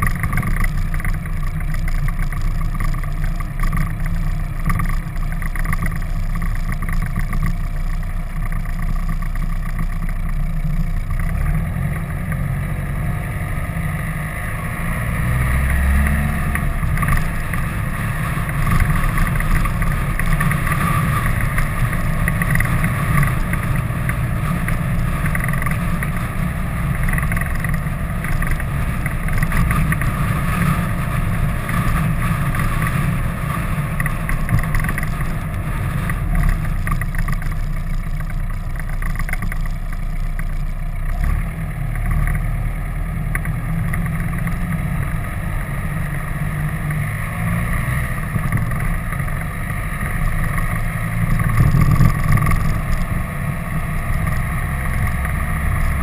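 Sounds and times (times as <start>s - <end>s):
motorcycle engine running: 0.0s - 56.0s
wind noise: 51.1s - 56.0s.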